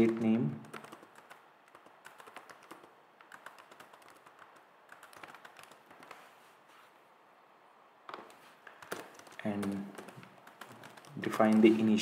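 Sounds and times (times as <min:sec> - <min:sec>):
keyboard typing: 0:00.0 - 0:06.3, 0:08.1 - 0:12.0.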